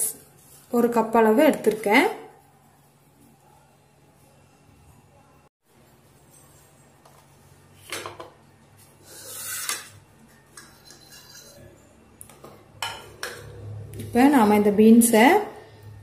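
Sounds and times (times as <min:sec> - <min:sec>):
spoon scraping in bowl: 0:08.8 - 0:11.9.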